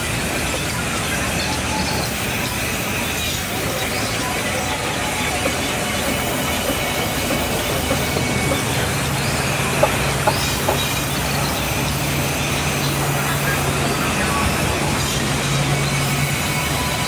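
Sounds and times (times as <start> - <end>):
band sawmill sawing: 0.0 - 17.0.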